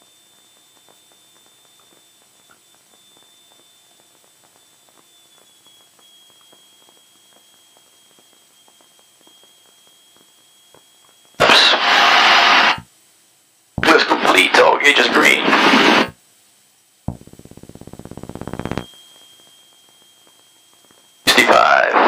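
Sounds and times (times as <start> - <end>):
high-pitched electrical whine: 0.0 - 22.0
hiss: 5.6 - 12.9.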